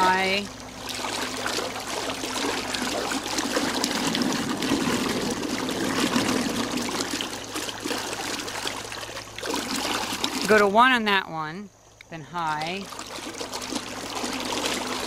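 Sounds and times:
propellers churning water: 0:00.0 - 0:11.2, 0:12.2 - 0:15.0.

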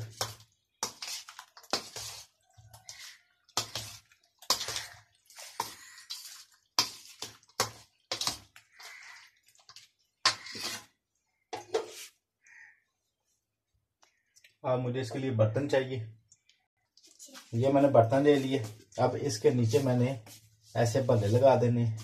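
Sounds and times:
spoon scraping steel platter: 0:00.0 - 0:11.0
wet food slopping: 0:00.0 - 0:12.4.

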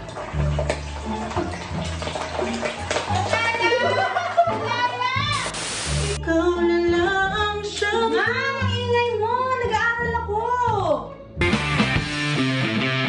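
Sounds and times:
pop music with female singing: 0:04.6 - 0:11.0
short burst of hiss: 0:05.3 - 0:06.2.

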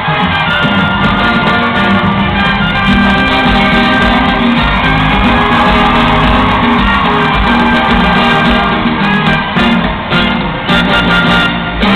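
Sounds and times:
live salsa band music: 0:00.0 - 0:11.9.

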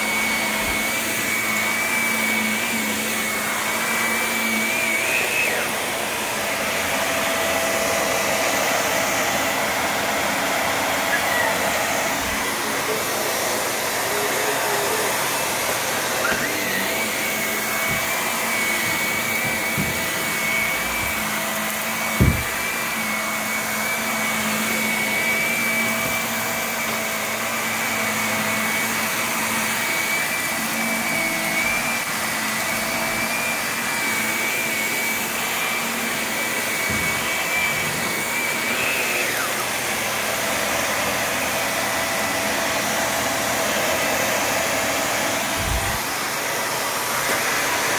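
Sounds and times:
vacuum cleaner running: 0:00.0 - 0:47.9
high steady whistle: 0:04.6 - 0:05.8.

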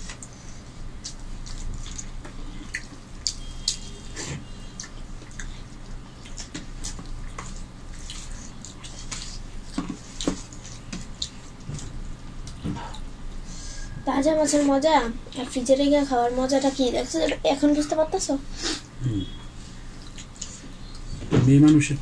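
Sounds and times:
faint low hum: 0:00.0 - 0:22.0
chewing and lip smacks: 0:01.0 - 0:03.9, 0:04.7 - 0:13.1, 0:19.9 - 0:21.1.

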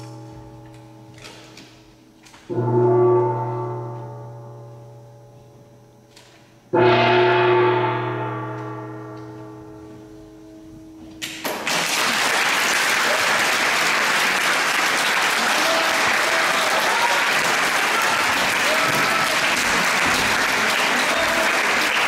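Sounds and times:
large gong ringing: 0:00.0 - 0:01.6, 0:02.5 - 0:06.1, 0:06.7 - 0:11.5
applause: 0:11.4 - 0:22.0.

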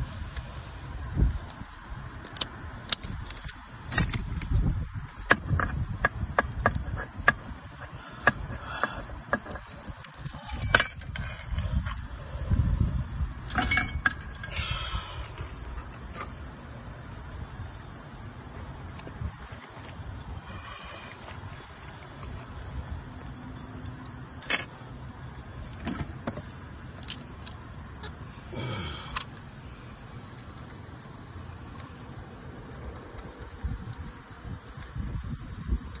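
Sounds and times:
metallic clicks and clinks of tools: 0:02.2 - 0:04.7, 0:06.6 - 0:12.0, 0:13.5 - 0:16.4, 0:23.4 - 0:24.9.

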